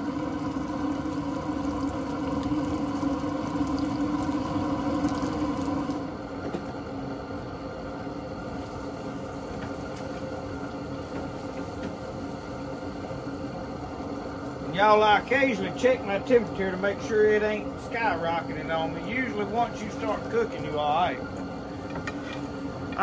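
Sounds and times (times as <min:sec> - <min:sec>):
oil bubbling and sizzling: 0:00.0 - 0:06.8, 0:07.8 - 0:16.6
steady hum: 0:00.0 - 0:23.0.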